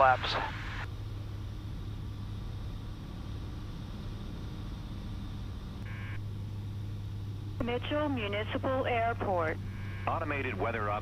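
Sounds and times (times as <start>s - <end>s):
airplane engine drone in cabin: 0.0s - 11.0s.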